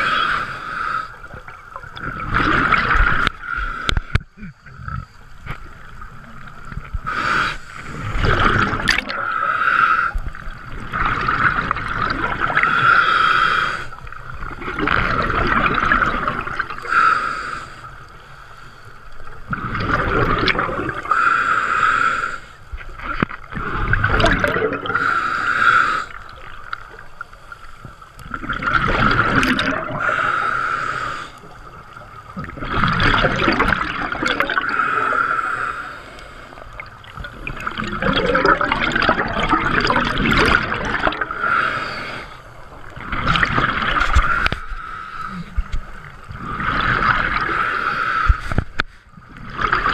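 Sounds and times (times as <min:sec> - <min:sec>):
diver breathing through regulator: 0:07.0 - 0:10.3, 0:12.5 - 0:14.0, 0:16.8 - 0:19.0, 0:20.9 - 0:22.7, 0:23.6 - 0:26.5, 0:29.8 - 0:31.6, 0:34.5 - 0:39.0, 0:40.4 - 0:42.7, 0:44.1 - 0:49.1.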